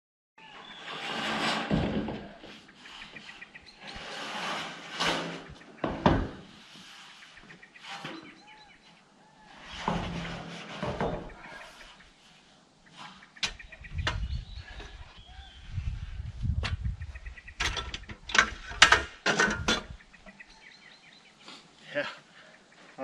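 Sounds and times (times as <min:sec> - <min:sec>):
birds chirping: 0:00.4 - 0:01.0, 0:02.2 - 0:04.2, 0:05.0 - 0:09.6, 0:10.8 - 0:23.0
steel sheets scraping and clanking: 0:00.4 - 0:12.2, 0:17.5 - 0:20.4.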